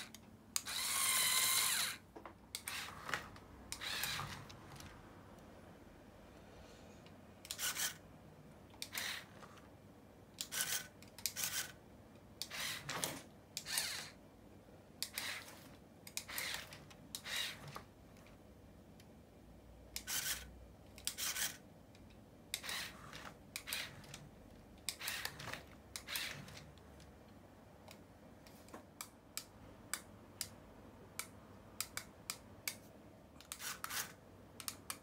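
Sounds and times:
small electric motor whirring: 0:00.0 - 0:02.0, 0:02.6 - 0:04.8, 0:07.5 - 0:08.0, 0:08.8 - 0:09.6, 0:10.4 - 0:11.8, 0:12.4 - 0:14.2, 0:15.1 - 0:17.8, 0:22.6 - 0:24.2, 0:24.9 - 0:26.7.

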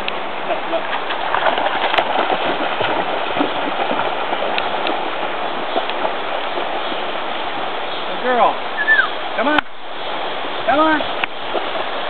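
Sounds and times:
river water rushing: 0:00.0 - 0:12.0
dog splashing through water: 0:00.5 - 0:07.6.

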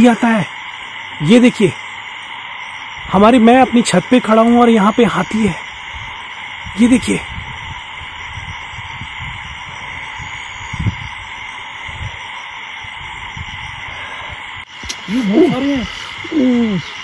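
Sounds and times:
night insects chorus: 0:00.0 - 0:17.0.

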